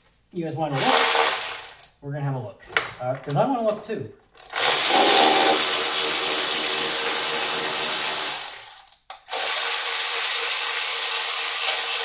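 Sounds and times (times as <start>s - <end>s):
electric ratchet whirring: 0.8s - 1.9s, 4.4s - 12.0s.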